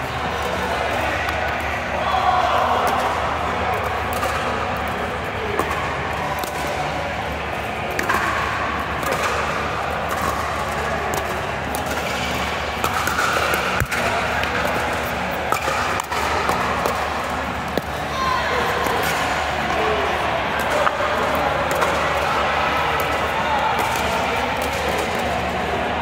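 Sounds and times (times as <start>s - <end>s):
background din of voices: 0.0s - 26.0s
paddles striking ball: 7.9s - 18.0s.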